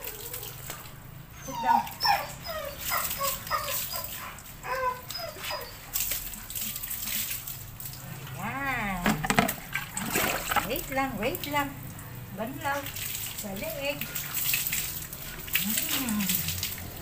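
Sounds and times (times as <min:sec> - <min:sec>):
water poured and splashing: 0:00.0 - 0:01.3, 0:01.9 - 0:17.0
puppy whimpering: 0:01.4 - 0:06.2.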